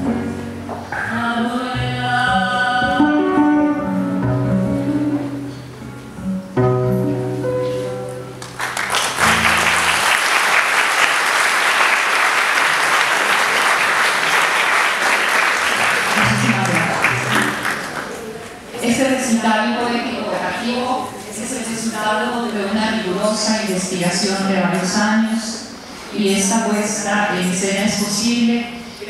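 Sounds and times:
acoustic guitar: 0:00.0 - 0:10.3, 0:15.9 - 0:23.5
audience applause: 0:08.4 - 0:18.6.

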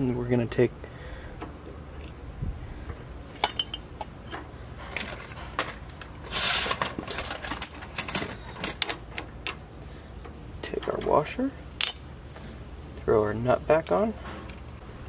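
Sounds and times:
metal chain clinking and rattling: 0:03.3 - 0:05.4, 0:06.2 - 0:09.6, 0:11.8 - 0:12.1.

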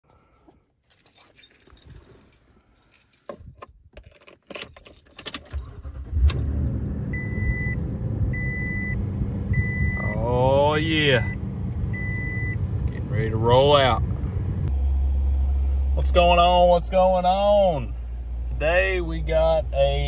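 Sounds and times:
keys jangling: 0:00.8 - 0:05.8
car engine starting and idling: 0:04.1 - 0:20.0.

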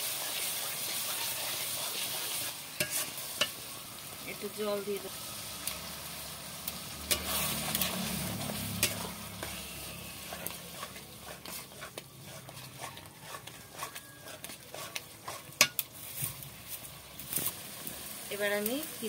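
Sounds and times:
frying sizzle: 0:00.0 - 0:19.0
metal spatula scraping pan: 0:00.1 - 0:03.7, 0:06.9 - 0:16.8.

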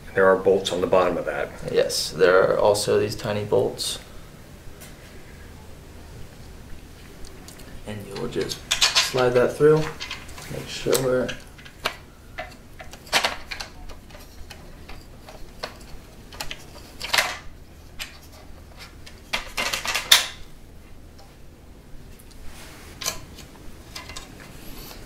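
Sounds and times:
metal scraping clatter: 0:08.1 - 0:10.6.

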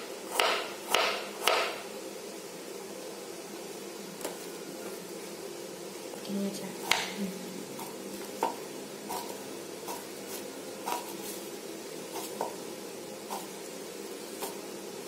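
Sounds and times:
low background hum: 0:00.0 - 0:15.0
knife tapping on cutting board: 0:06.9 - 0:07.1.

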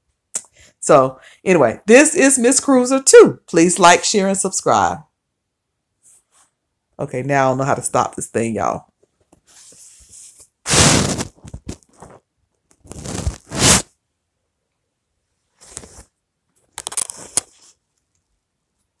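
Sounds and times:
scraping on phone microphone: 0:09.3 - 0:14.0, 0:15.5 - 0:16.2, 0:16.8 - 0:17.8.

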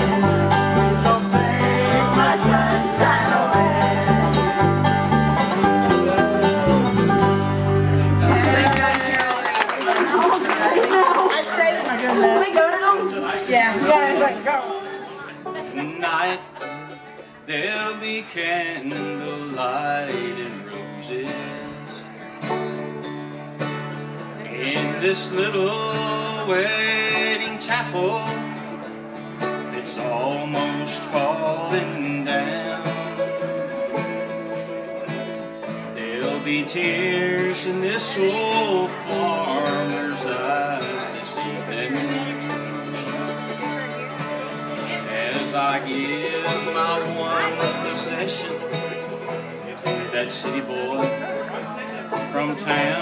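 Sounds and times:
acoustic bass guitar: 0:00.0 - 0:09.4, 0:11.7 - 0:53.0
acoustic guitar: 0:00.0 - 0:53.0
five-string banjo: 0:00.0 - 0:53.0
mandolin: 0:00.0 - 0:53.0.

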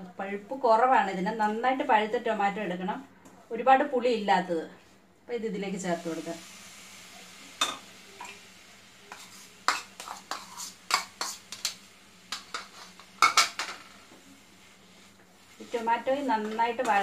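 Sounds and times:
spatula scraping a pan: 0:09.1 - 0:17.0.

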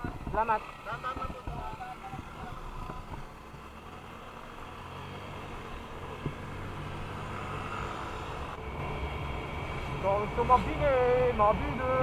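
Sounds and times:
road and wind noise: 0:00.0 - 0:12.0
scooter engine running: 0:00.0 - 0:12.0.

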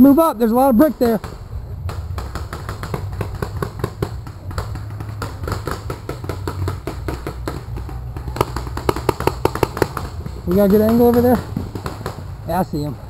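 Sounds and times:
low rumble: 0:00.4 - 0:05.4
paintball markers firing: 0:00.9 - 0:12.4.

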